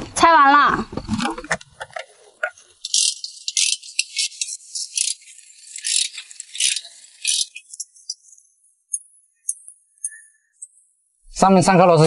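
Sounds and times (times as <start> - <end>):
dry high-pitched rattling: 2.4 - 10.7.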